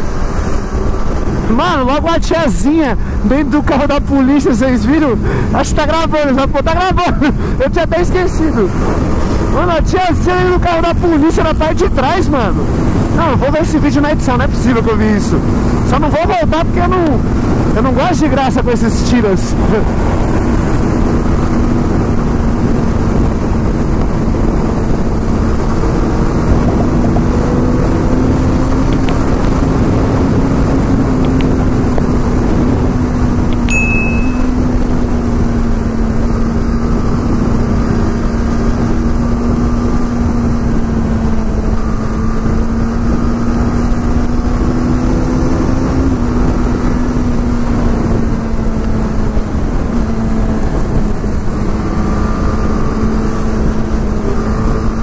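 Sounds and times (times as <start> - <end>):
wind rush on microphone: 0.0 - 55.0
motorcycle engine running: 19.6 - 55.0
brief high beep: 33.7 - 34.7.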